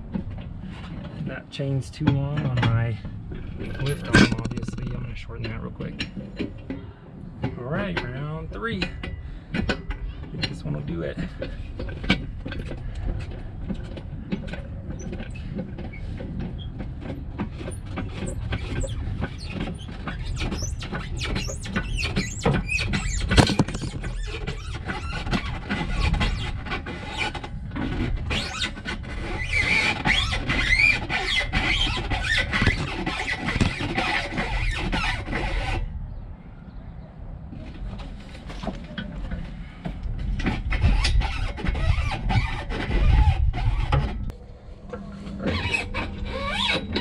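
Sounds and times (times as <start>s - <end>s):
metal knocks and clanks: 0.0s - 29.1s
high squealing and scraping: 0.0s - 36.2s, 37.5s - 47.0s
creaking and squealing: 0.0s - 47.0s.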